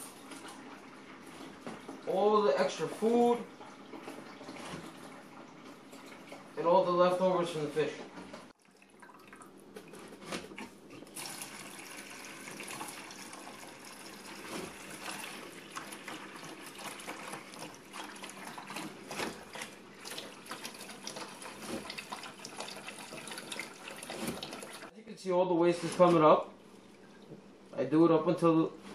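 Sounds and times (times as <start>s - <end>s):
water trickling into bucket: 8.5s - 9.7s, 11.0s - 24.9s.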